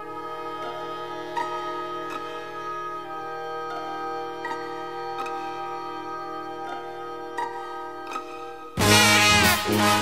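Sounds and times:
backing music with sustained chords: 0.0s - 10.0s.

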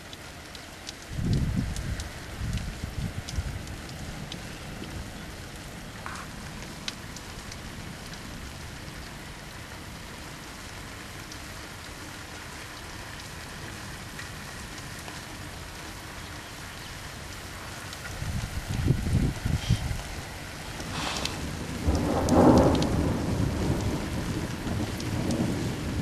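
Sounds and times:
steady rain hiss: 0.0s - 26.0s
light ticks: 0.1s - 5.0s, 17.9s - 18.9s, 20.7s - 23.0s, 23.7s - 25.4s.

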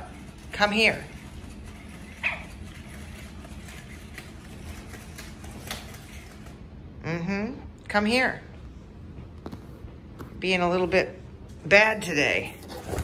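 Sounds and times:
robot dog electronic yip: 2.2s - 2.6s.

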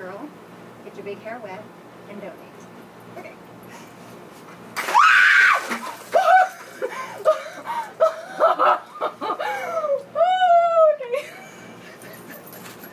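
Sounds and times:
woman screaming: 4.8s - 6.7s, 9.6s - 11.2s.

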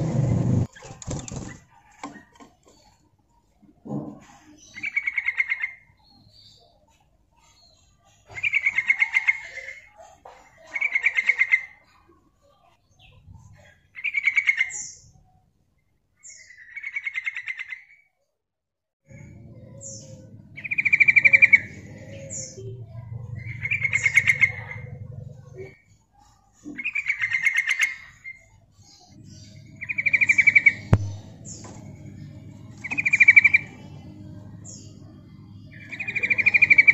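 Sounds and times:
low steady hum: 28.5s - 36.9s.

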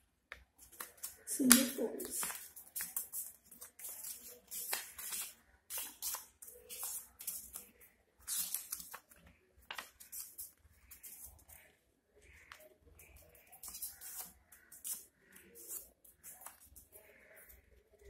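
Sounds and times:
paper being folded and creased: 0.6s - 11.6s, 13.4s - 17.2s.

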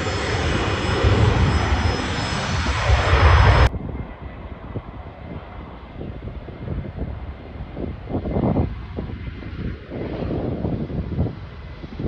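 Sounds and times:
distant jet hum: 0.0s - 6.4s
jet engines running at high power: 0.0s - 12.0s
wind gusting on microphone: 0.0s - 12.0s.

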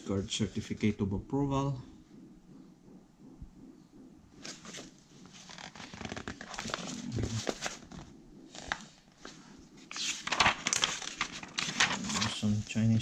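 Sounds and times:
paper rustling and crinkling: 4.4s - 13.0s.

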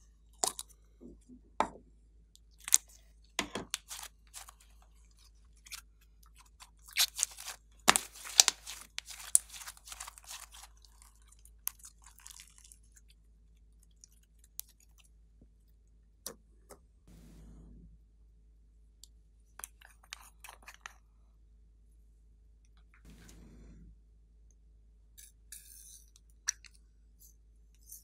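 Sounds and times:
slime crackling and popping: 7.0s - 11.0s.

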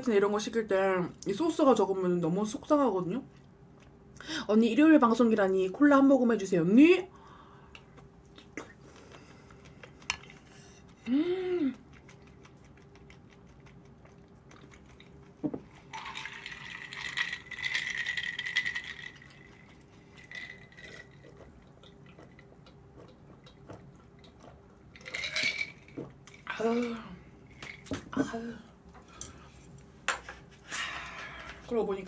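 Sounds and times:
person humming: 11.0s - 11.8s
cola fizzing into a cup: 15.8s - 22.2s.

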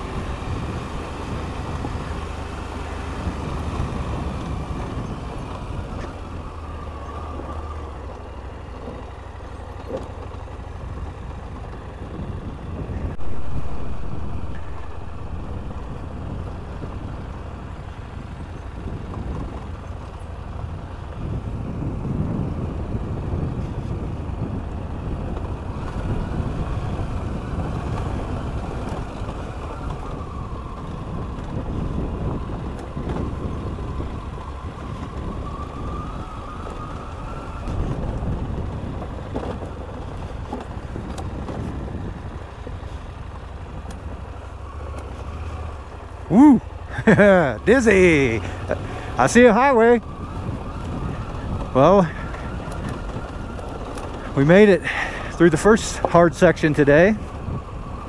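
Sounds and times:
motorcycle engine revving: 43.6s - 55.0s.

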